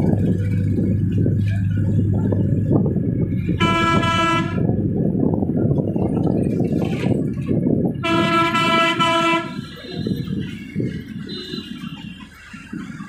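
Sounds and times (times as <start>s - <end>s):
vehicle engine and road rumble: 0.0s - 13.0s
vehicle horn: 3.6s - 4.7s, 8.0s - 10.5s, 11.2s - 12.3s.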